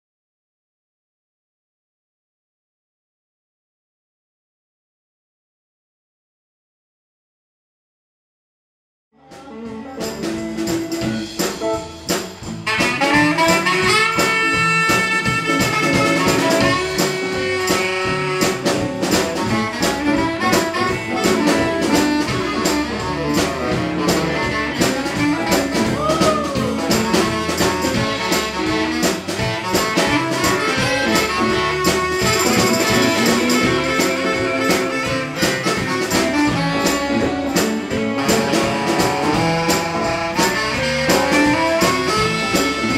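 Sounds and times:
live blues band playing: 9.2s - 42.9s.

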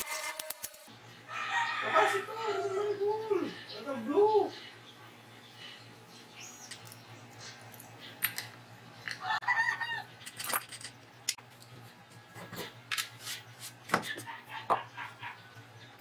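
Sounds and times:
chicken calling: 9.2s - 10.2s.

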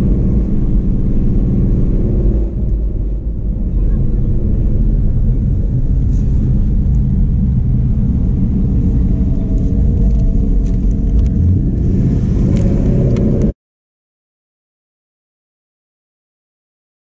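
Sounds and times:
car exhaust rumble: 0.0s - 13.5s.

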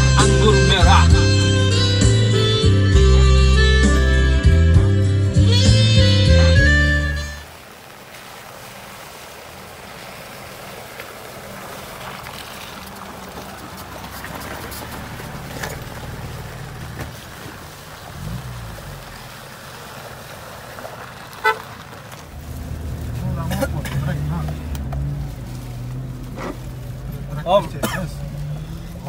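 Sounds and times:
suv engines running slowly: 0.0s - 29.0s
tyres crunching and splashing: 7.4s - 29.0s
engine revving: 18.1s - 19.2s, 22.4s - 29.0s.

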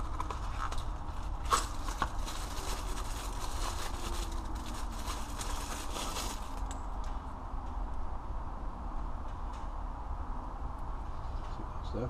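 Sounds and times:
plastic packaging crinkling: 0.0s - 7.1s
steady low hum: 0.0s - 12.0s.

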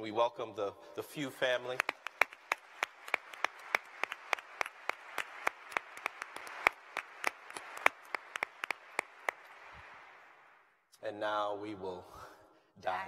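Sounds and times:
audience applauding: 1.5s - 10.8s
sharp close claps: 1.7s - 10.8s.

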